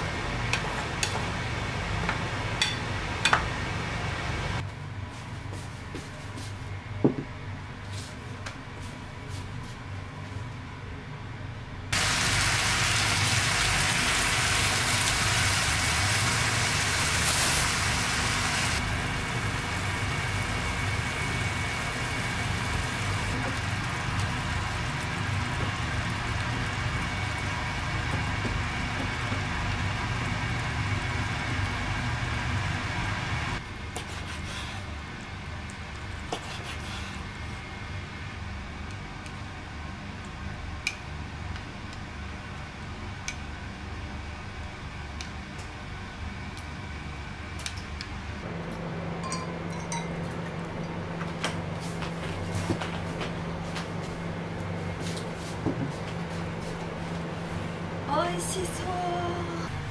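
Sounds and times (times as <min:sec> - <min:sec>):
food sizzling in a pan: 0:12.0 - 0:33.6.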